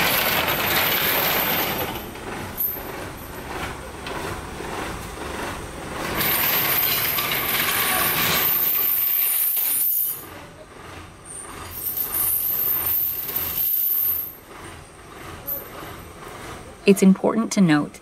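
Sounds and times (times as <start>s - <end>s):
metal chains clinking: 0.0s - 3.4s, 6.1s - 10.2s, 11.4s - 14.4s.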